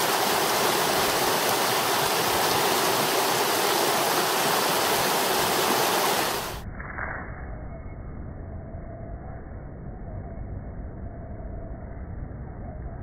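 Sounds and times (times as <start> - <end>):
creek water flowing: 0.0 - 6.6.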